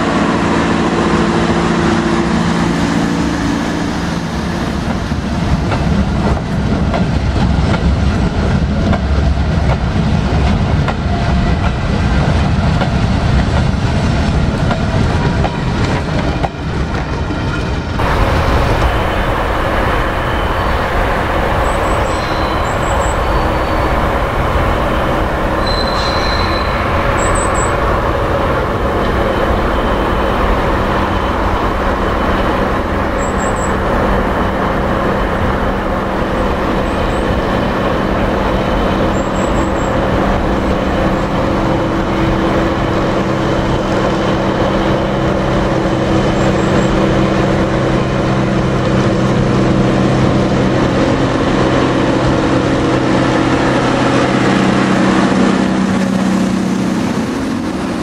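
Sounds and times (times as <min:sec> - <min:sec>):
locomotive engine droning: 0:00.0 - 0:58.0
faint high chirps: 0:25.6 - 0:27.8.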